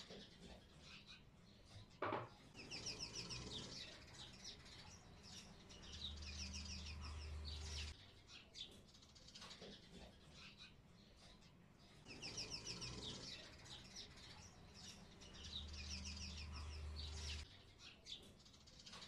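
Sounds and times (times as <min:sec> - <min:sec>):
small bird chirping: 0:00.0 - 0:19.0.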